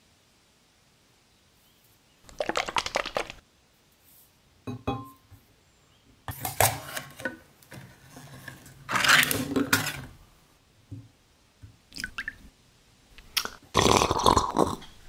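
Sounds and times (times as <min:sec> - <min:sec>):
can lid peeling open crackling: 0:02.3 - 0:03.4
tapping and scratching on tin can: 0:02.3 - 0:03.4.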